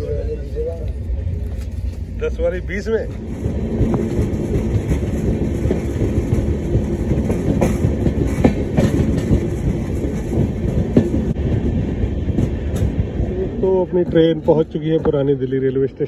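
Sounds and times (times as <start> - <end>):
train wheels rumbling on rails: 0.0 - 16.0
wheels clacking over rail joints: 3.1 - 15.8.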